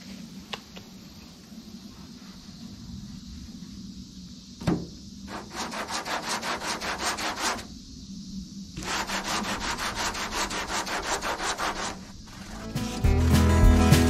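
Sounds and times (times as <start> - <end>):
sharp knock: 4.6 - 5.0
sanding block scraping: 5.3 - 7.7, 8.8 - 13.4.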